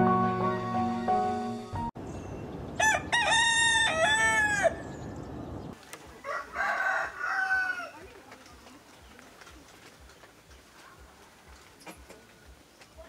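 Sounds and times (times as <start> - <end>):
soft music: 0.0 - 2.0
rooster crowing: 2.8 - 4.9, 6.2 - 8.0.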